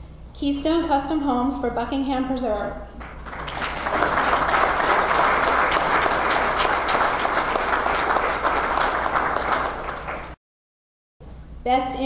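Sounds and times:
audience applauding: 3.0 - 10.4.

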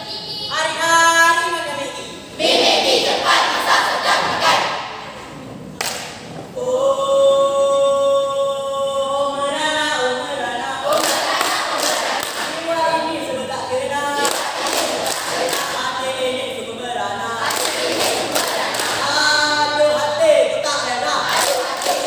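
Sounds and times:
group speaking in unison: 2.4 - 4.8
group holding a sung chord: 2.4 - 5.1, 6.6 - 22.0.

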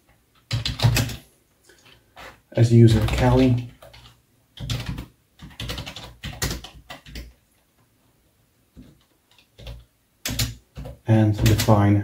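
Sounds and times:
typing on computer keyboard: 0.4 - 1.2, 2.9 - 7.4, 8.8 - 11.8.

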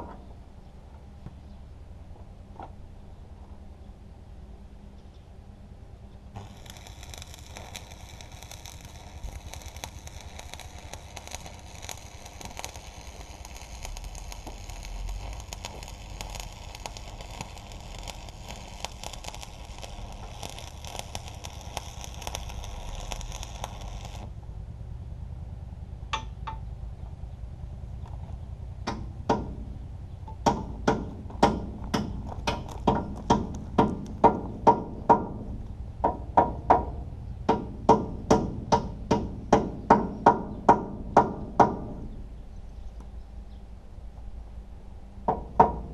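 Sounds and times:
welding arc crackling sizzle: 6.4 - 24.4, 31.0 - 34.7
hammer striking metal: 26.1 - 26.6.

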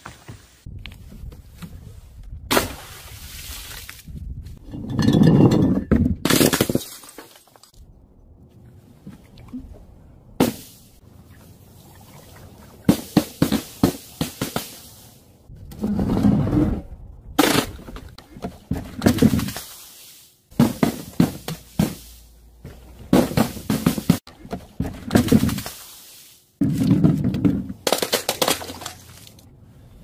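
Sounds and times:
glass bottles breaking: 4.8 - 7.8, 27.8 - 29.3.

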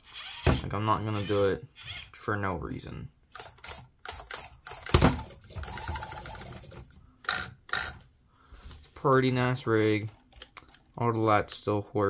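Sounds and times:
toy car motor and gears whirring: 0.0 - 2.2, 3.3 - 8.0.

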